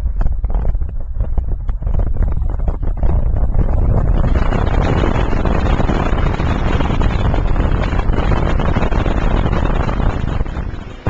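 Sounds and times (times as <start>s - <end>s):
wind buffeting microphone: 0.0s - 11.0s
car road noise: 2.2s - 11.0s.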